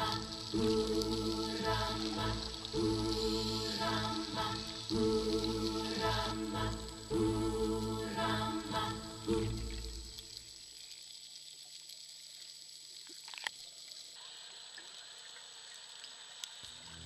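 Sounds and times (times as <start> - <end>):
background music: 0.0 - 10.2
underwater hiss: 0.0 - 10.8.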